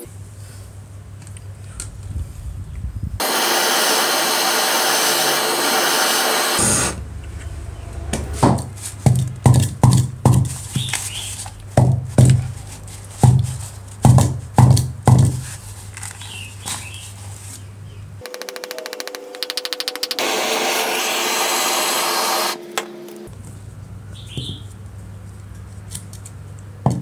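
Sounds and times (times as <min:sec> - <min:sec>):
power tool running: 0:03.2 - 0:08.6, 0:18.2 - 0:23.3.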